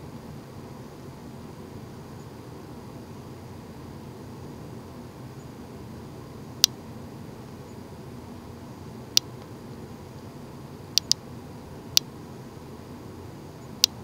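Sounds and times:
sharp short clicks: 11.0s - 11.2s.

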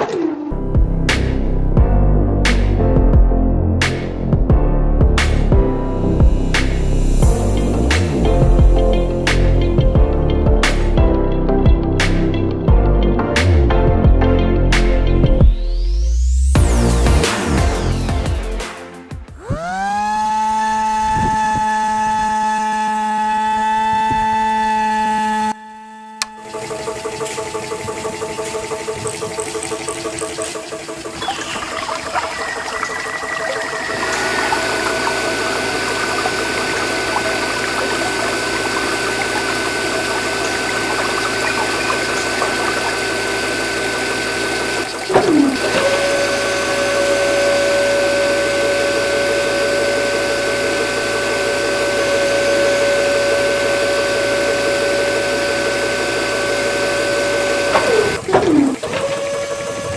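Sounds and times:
small motors whining: 19.3s - 59.9s
water churning and gurgling: 26.5s - 59.9s.

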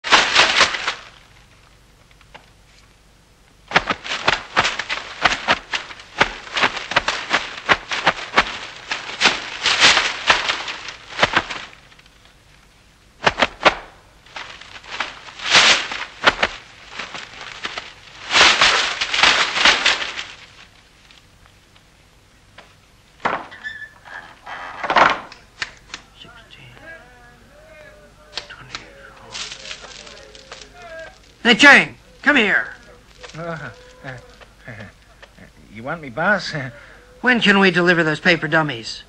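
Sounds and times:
sharp cracks of hits: 0.0s - 1.3s, 3.7s - 11.9s, 13.2s - 20.6s
paper crackling and ripping: 0.0s - 2.9s, 3.7s - 12.6s, 13.2s - 21.8s, 27.7s - 37.6s.

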